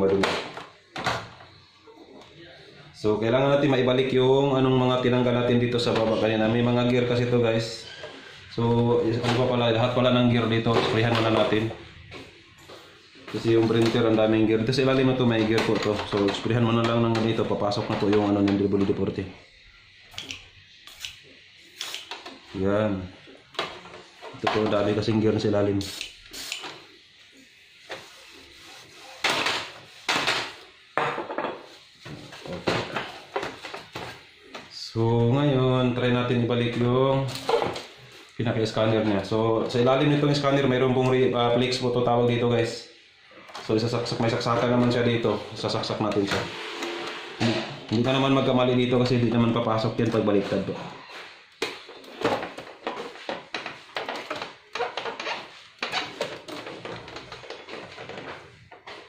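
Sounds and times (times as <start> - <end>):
plastic parts clattering and scraping: 51.6 - 59.0.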